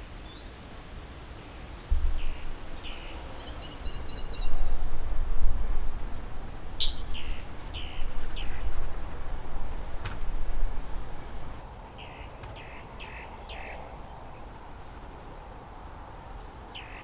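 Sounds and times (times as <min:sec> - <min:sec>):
small birds chirping: 0:01.4 - 0:04.8, 0:06.7 - 0:15.6, 0:16.7 - 0:17.0.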